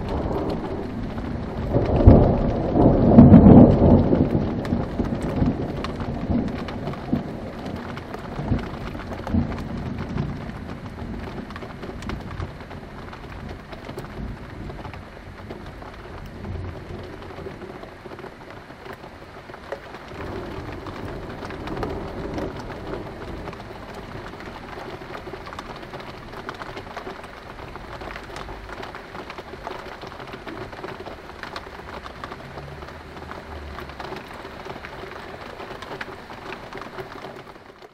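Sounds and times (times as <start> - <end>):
rolling thunder: 0.0 - 17.9, 20.1 - 28.8
steady rain falling: 0.0 - 37.9.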